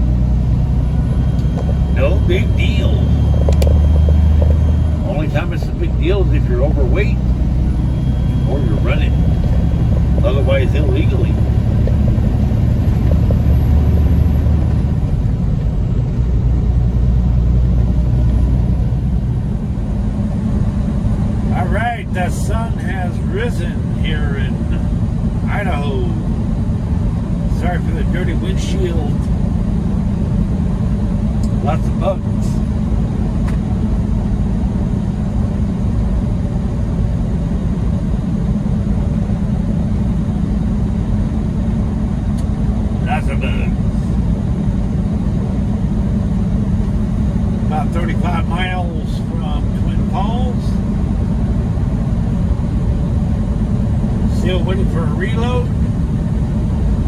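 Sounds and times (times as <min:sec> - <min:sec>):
tyre and road noise: 0:00.0 - 0:26.0
truck engine and road noise: 0:00.0 - 0:57.0.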